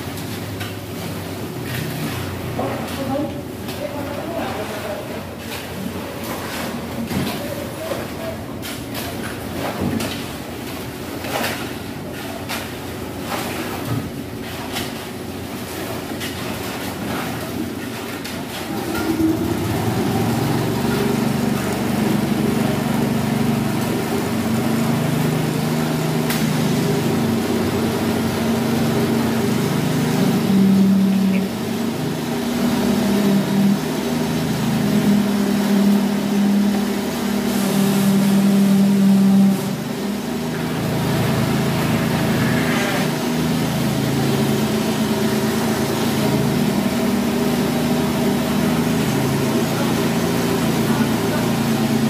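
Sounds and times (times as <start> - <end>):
machinery engines droning: 18.1 - 52.0.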